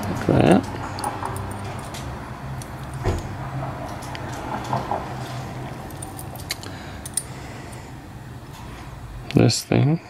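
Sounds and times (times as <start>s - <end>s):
steady low hum: 0.0s - 10.0s
small metal parts clicking: 5.9s - 7.3s.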